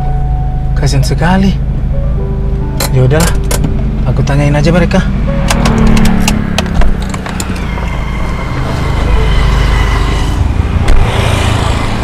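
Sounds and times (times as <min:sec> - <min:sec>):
car door clicks and knocks: 0:05.4 - 0:07.6.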